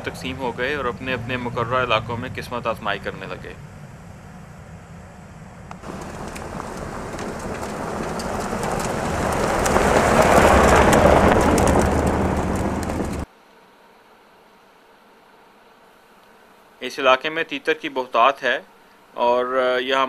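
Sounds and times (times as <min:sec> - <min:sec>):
vehicle driving by: 0:00.0 - 0:13.3.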